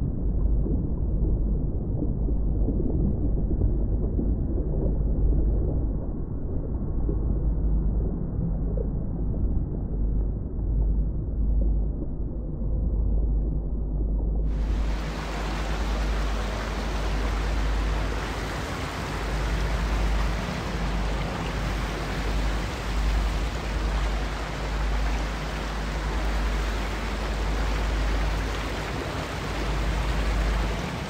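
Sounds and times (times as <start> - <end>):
stream rushing over rocks: 14.5 - 31.0.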